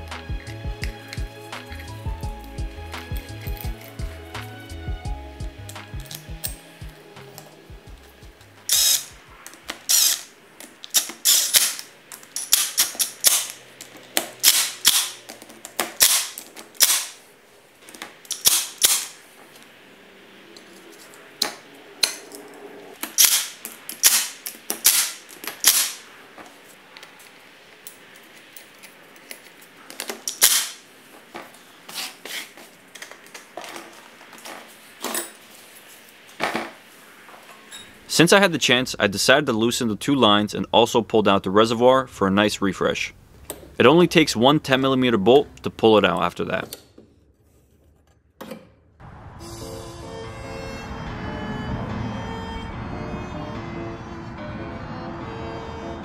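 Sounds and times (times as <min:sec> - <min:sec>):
metal parts clicking and clanking: 0:03.1 - 0:04.1, 0:08.7 - 0:17.2, 0:17.8 - 0:19.2, 0:20.6 - 0:30.8, 0:31.4 - 0:35.5.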